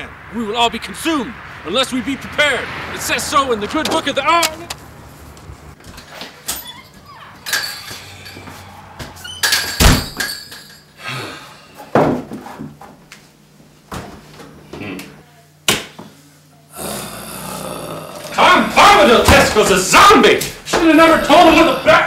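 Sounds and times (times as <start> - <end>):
front door opening and shutting: 8.6 - 10.4.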